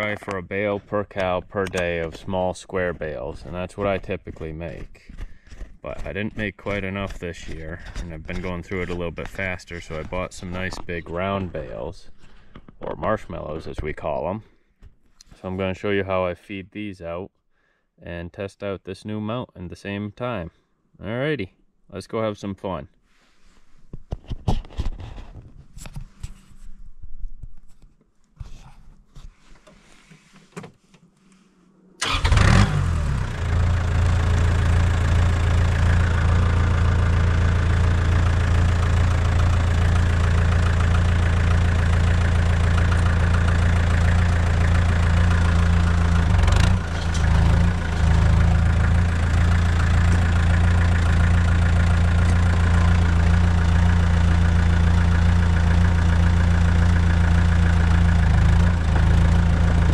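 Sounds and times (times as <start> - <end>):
tractor engine starting and idling: 0.0 - 14.3, 32.0 - 59.9.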